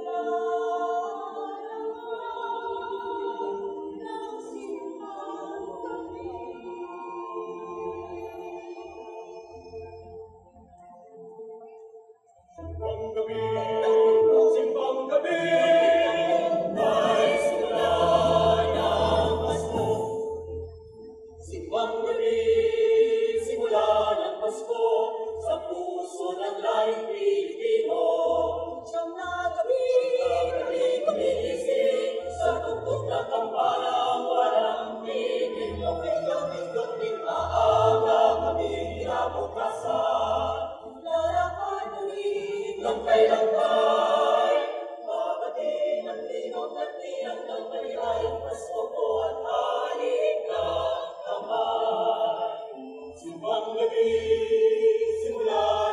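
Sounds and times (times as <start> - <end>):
mixed choir singing a cappella: 0.0 - 10.2, 12.6 - 55.9.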